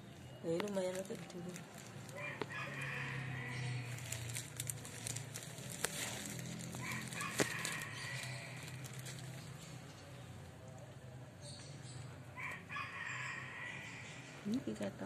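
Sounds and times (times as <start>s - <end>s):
rooster crowing: 2.1s - 4.2s, 6.8s - 9.2s, 12.4s - 14.2s.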